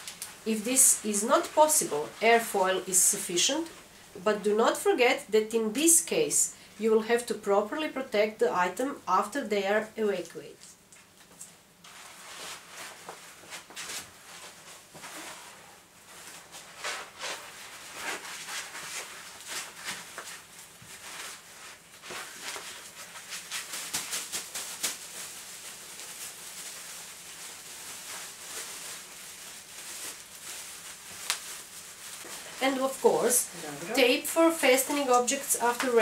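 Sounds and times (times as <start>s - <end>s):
paper and plastic rustling: 0.0s - 3.7s, 11.0s - 36.0s
bubble wrap handled: 0.0s - 3.8s, 11.2s - 36.0s
plastic bag handled: 11.9s - 36.0s.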